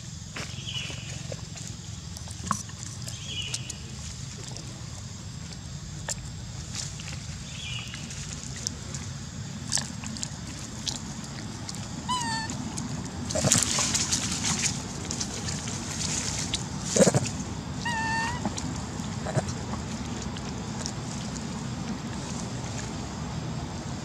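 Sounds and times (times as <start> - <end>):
baby monkey squeaky calls: 12.1 - 12.6, 17.8 - 18.4.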